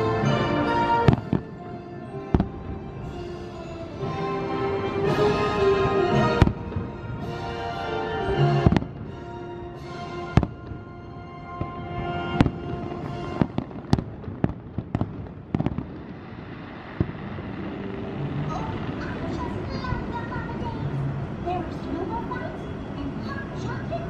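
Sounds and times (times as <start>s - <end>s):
music with long held notes: 0.0s - 14.0s, 16.7s - 19.4s
fireworks bursting with bangs: 0.9s - 4.4s, 5.2s - 7.8s, 8.4s - 10.9s, 11.5s - 20.2s.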